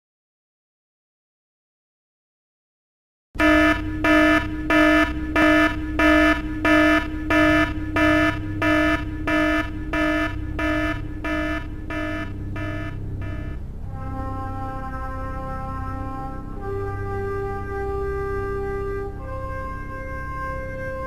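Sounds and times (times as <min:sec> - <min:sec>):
alarm klaxon pulsing: 0:03.4 - 0:13.6
steady low rumble: 0:03.4 - 0:14.2.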